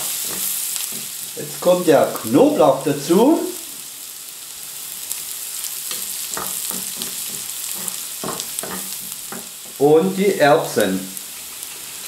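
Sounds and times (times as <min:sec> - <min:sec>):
onions sizzling in a frying pan: 0:00.0 - 0:12.0
spatula knocking against pan: 0:06.3 - 0:09.8.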